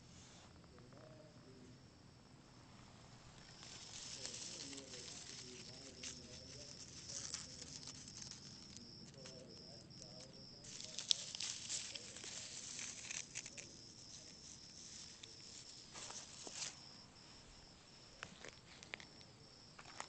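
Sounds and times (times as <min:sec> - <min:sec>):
rustling leaves and stems: 0:02.7 - 0:20.0
sharp crackle: 0:03.3 - 0:17.1
insect trilling: 0:03.3 - 0:19.7.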